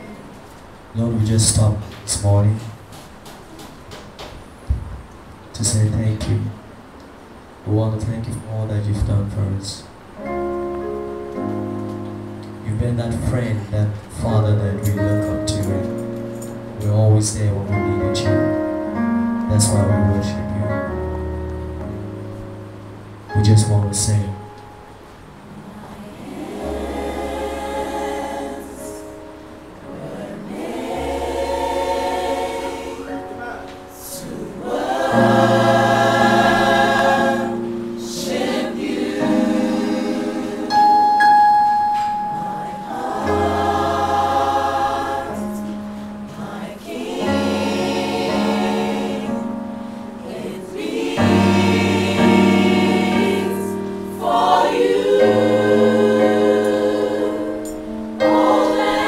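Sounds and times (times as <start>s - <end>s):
choir singing in harmony: 25.5s - 59.0s.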